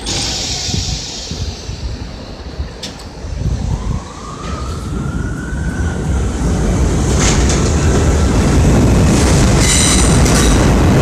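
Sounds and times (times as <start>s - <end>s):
subway traction motor whine: 0.0s - 11.0s
train wheels rumbling on track: 0.0s - 11.0s.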